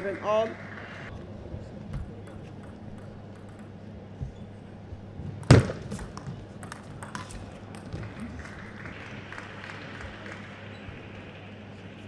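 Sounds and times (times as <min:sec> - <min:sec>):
ping pong ball clicking: 0:02.2 - 0:03.9, 0:06.1 - 0:08.0.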